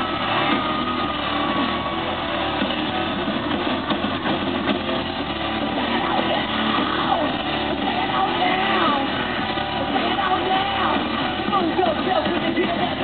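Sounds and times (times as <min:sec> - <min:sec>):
high voices screaming: 0:00.0 - 0:03.2, 0:05.4 - 0:12.0
crowd cheering: 0:00.0 - 0:13.0
rock band playing loudly: 0:00.0 - 0:13.0.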